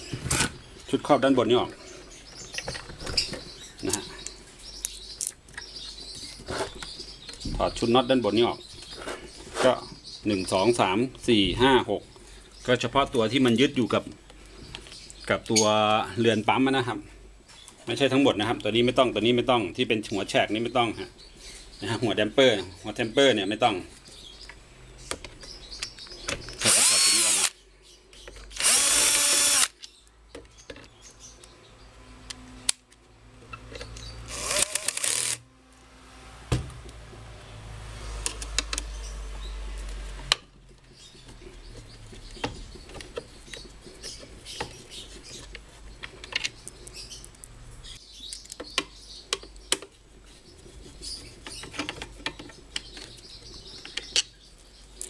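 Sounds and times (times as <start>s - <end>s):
cordless drill whining: 26.6s - 27.5s, 28.6s - 29.8s, 34.3s - 35.4s.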